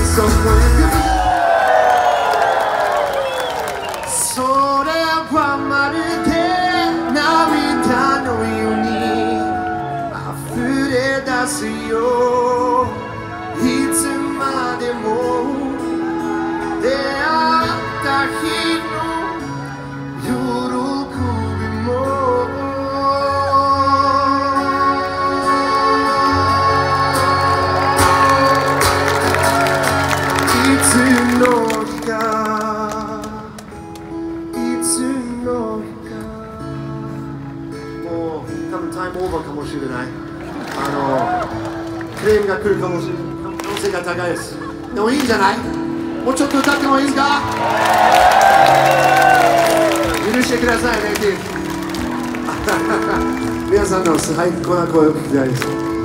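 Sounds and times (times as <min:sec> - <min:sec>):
live band through pa: 0:00.0 - 0:56.0
person singing melody: 0:04.4 - 0:29.5
strummed acoustic guitars: 0:48.7 - 0:56.0.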